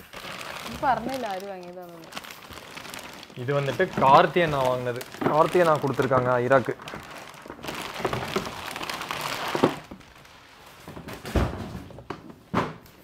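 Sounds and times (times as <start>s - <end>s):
plastic wrapping crinkling: 0.0s - 12.3s
cardboard box rustling: 2.2s - 10.2s.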